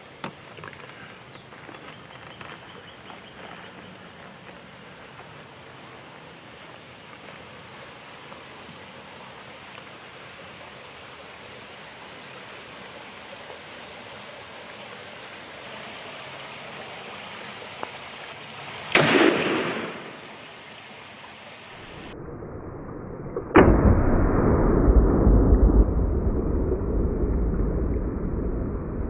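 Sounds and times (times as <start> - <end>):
creek water rushing: 0.0 - 22.2
gunshot: 18.9 - 20.3, 23.6 - 26.4
loud bang: 18.9 - 20.3, 23.4 - 29.0.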